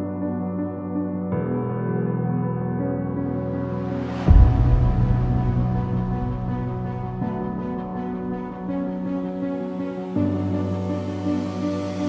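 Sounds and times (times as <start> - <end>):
soft sustained background music: 0.0 - 12.0.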